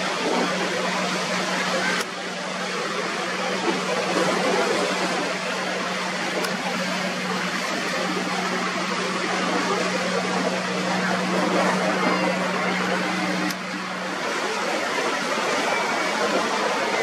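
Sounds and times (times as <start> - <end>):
boat motor drone: 0.0 - 17.0
water churning and spraying: 0.0 - 17.0.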